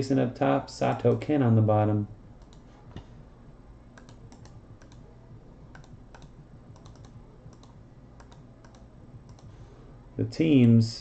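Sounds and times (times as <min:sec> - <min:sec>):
computer keyboard clicking: 0:04.0 - 0:05.0, 0:05.7 - 0:09.5.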